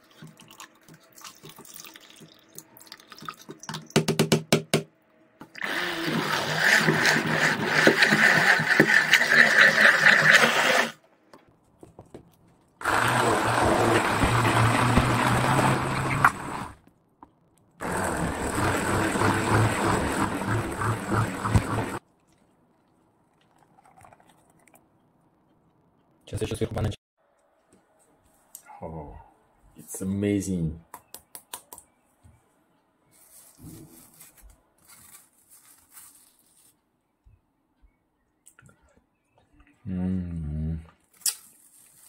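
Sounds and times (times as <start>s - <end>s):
immersion blender running: 5.6s - 11.0s, 12.8s - 16.8s, 17.8s - 22.0s.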